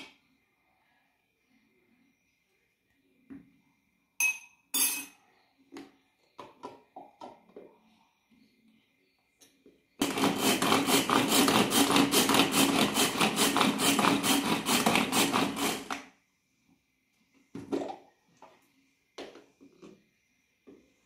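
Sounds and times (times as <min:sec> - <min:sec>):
string food chopper whirring: 0:10.0 - 0:16.0.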